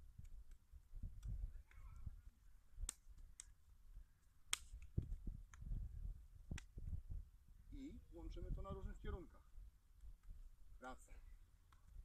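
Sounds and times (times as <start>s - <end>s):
hands slapping forearms: 2.8s - 3.6s, 4.4s - 5.7s, 6.5s - 6.8s.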